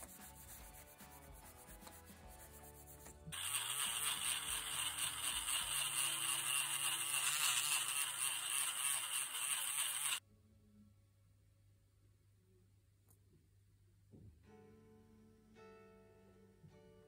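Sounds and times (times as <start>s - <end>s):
rotary tool polishing whir: 3.3s - 10.2s.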